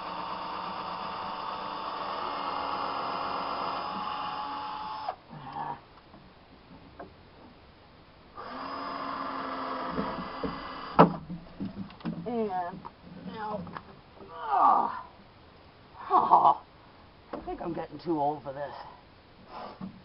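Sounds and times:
cordless drill boring wood: 0.0 - 5.2, 8.4 - 11.1.

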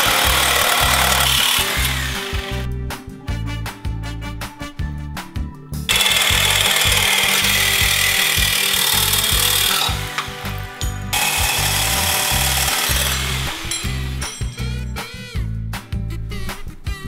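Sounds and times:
angle grinder cutting metal: 0.0 - 2.7, 5.9 - 14.6
background music with beat: 0.0 - 17.0.

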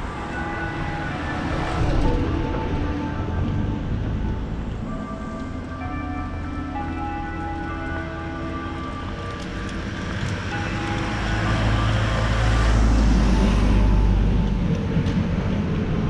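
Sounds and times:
truck driving past: 10.0 - 16.0.

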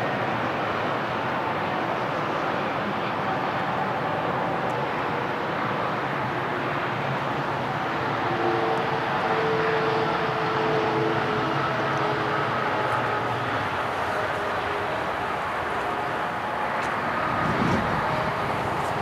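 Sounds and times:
jet engine rushing noise: 10.3 - 19.0.

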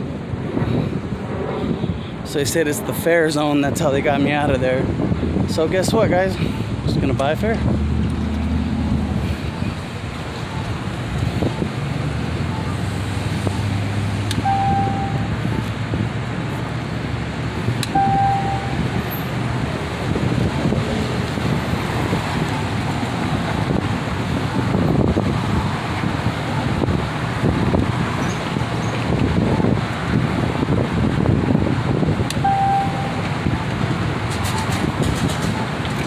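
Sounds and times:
wind buffeting microphone: 0.0 - 14.5, 18.6 - 36.0
street traffic: 0.0 - 36.0
short electronic beep: 14.4 - 15.7, 17.9 - 18.9, 32.4 - 33.2.

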